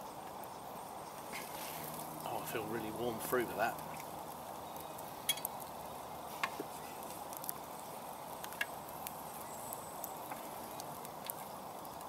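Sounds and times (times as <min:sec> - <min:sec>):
campfire crackling and popping: 0:00.0 - 0:12.0.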